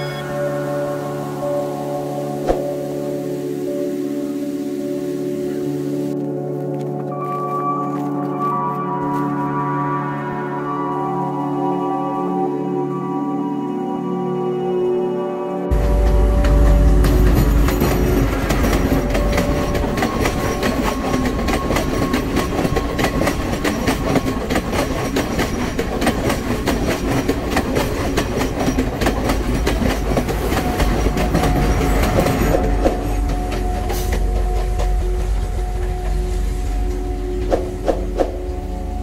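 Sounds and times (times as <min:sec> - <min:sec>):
train rumble: 0:15.7 - 0:39.0
train wheels clicking over rail joints: 0:15.8 - 0:38.5.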